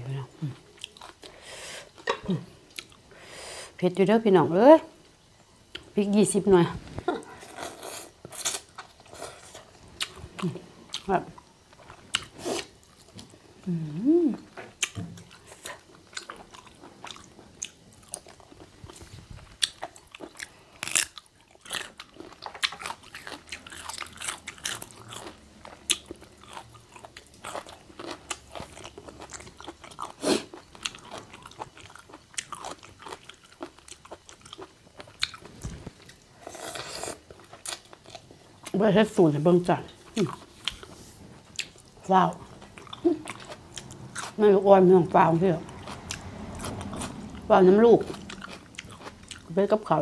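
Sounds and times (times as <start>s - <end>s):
chewing and crunching: 0.4s - 1.4s, 7.1s - 13.6s, 14.4s - 38.8s, 39.9s - 44.6s, 45.7s - 49.9s
person humming: 13.6s - 14.5s.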